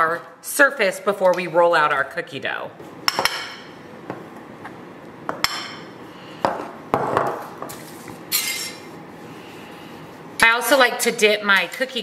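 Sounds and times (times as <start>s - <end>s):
spoon clinking against glass: 8.3s - 8.8s.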